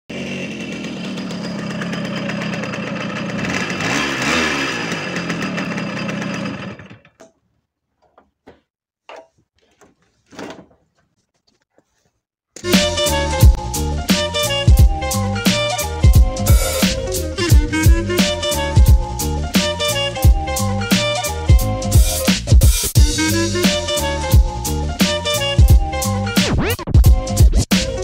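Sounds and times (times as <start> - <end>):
moped engine revving: 0.1 - 7.1, 12.6 - 22.0.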